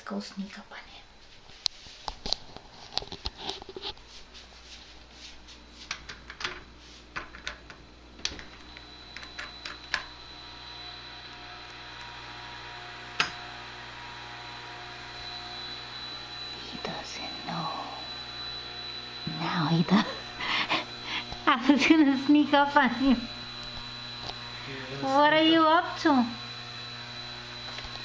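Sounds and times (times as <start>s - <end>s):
footsteps: 1.2s - 6.2s
grinder motor humming: 8.2s - 28.0s.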